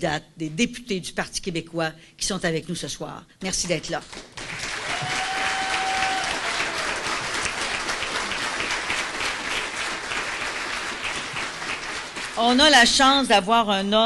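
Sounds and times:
audience applauding: 4.2s - 12.8s.

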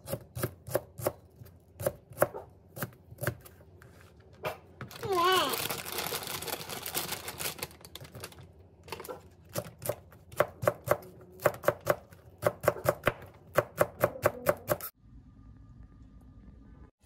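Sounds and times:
knife chopping on cutting board: 9.6s - 14.8s.

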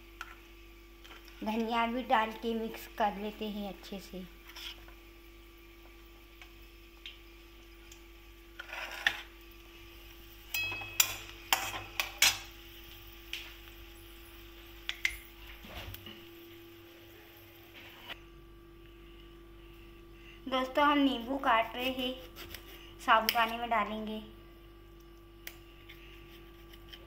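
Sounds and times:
spoons clinking on metal cookware: 10.5s - 12.5s.

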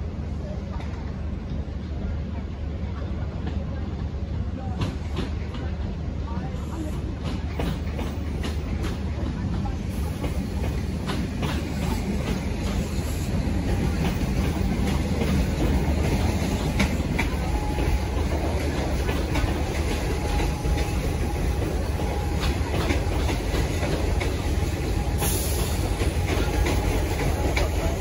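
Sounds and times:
electric train rumbling: 0.0s - 28.0s
wheels clicking over rail joints: 7.1s - 28.0s.

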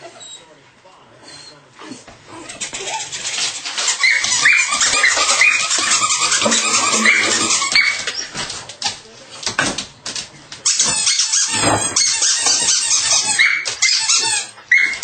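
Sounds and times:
puppy yelping: 2.3s - 8.3s, 10.7s - 15.0s.

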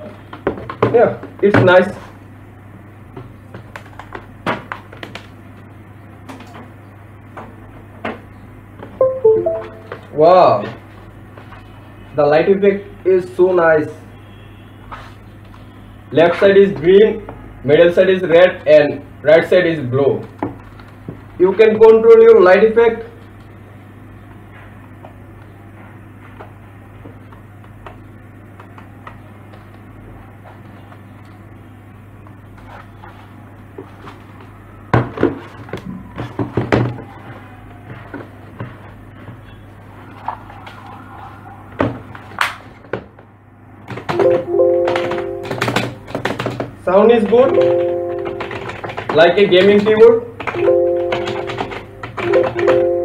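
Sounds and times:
plastic keyboard knocks and clicks: 43.9s - 52.9s.

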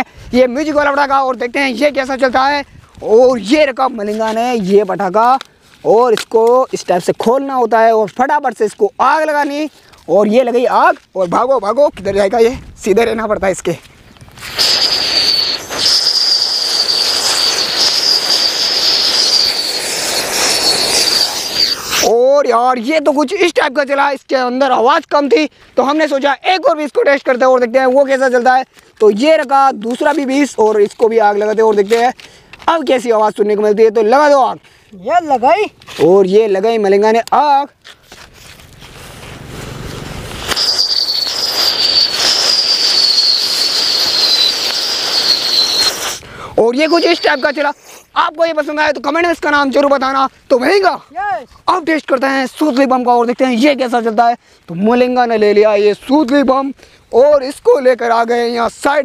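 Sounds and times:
sparks spraying with rushing hiss: 14.2s - 22.2s, 38.8s - 48.8s
firework whistling: 14.3s - 22.2s, 39.6s - 48.1s.

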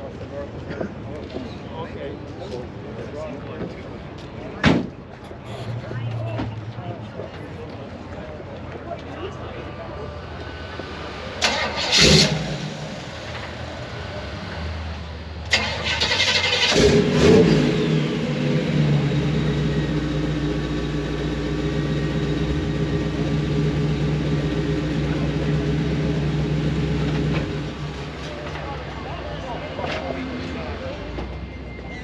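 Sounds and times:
pickup engine starting and revving: 11.4s - 14.5s, 15.4s - 28.1s.

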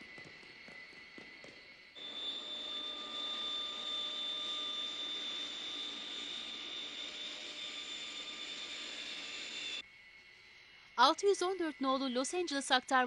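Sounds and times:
jet engines whining: 0.0s - 9.8s.

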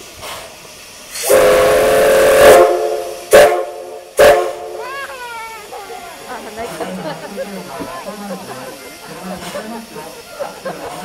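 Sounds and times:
steam hissing: 0.0s - 11.0s
steam locomotive whistle blasts: 1.1s - 4.8s.

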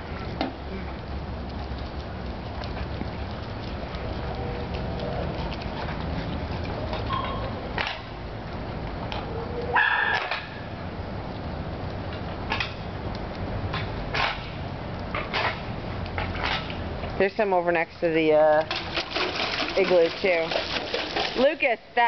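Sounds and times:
dog yelp: 9.3s - 10.5s.

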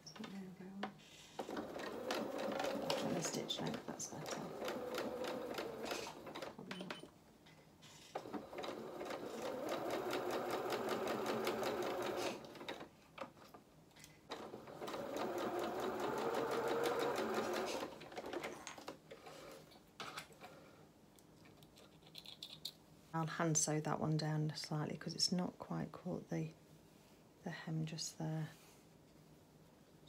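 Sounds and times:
sewing machine running: 1.4s - 6.6s, 8.1s - 12.9s, 14.3s - 18.5s.

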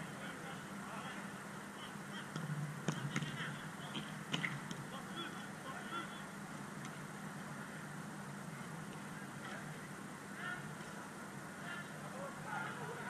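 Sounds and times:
steady low hum: 0.0s - 13.0s
distant shouts of players: 11.5s - 13.0s.

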